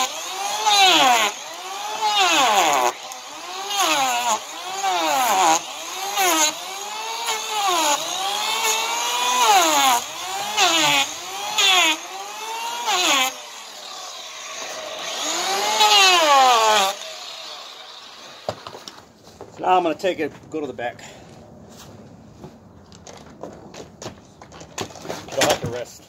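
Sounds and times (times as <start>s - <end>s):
electric planer motor whine: 0.0s - 18.6s
planer rasping through hoof: 0.0s - 18.9s.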